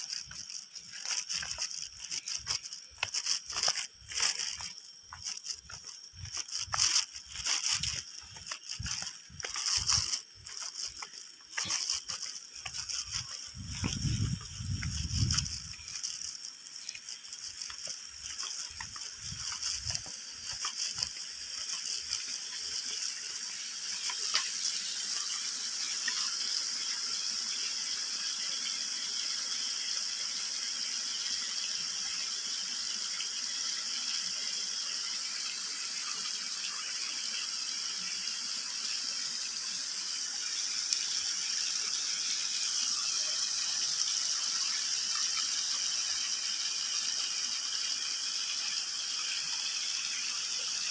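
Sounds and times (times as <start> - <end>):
water splashing onto rocks: 0.1 - 25.4.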